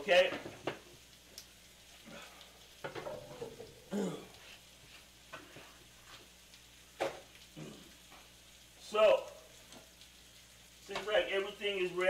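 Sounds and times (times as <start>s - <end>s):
faint sizzling on grill: 0.0s - 12.0s
kitchen utensils knocking and clattering: 2.8s - 3.8s.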